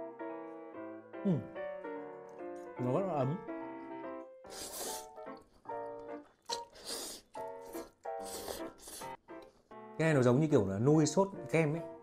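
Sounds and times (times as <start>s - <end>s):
hissy eating noise: 4.5s - 5.2s, 6.4s - 9.2s.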